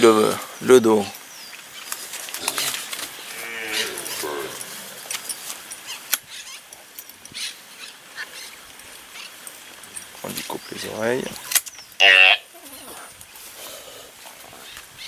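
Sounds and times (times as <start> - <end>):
calf bawling: 2.4 - 5.1.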